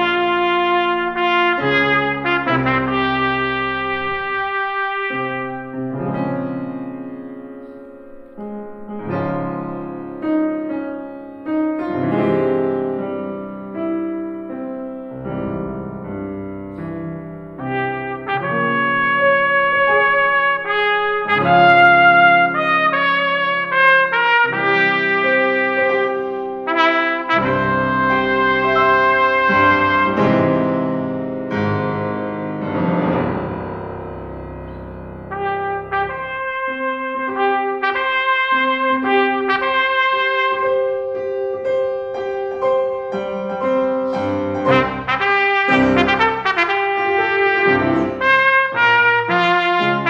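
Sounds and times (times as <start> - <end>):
trumpet sustained notes: 0.0 - 5.9, 17.7 - 30.8, 35.3 - 41.3, 44.1 - 50.0
piano chords: 0.0 - 50.0.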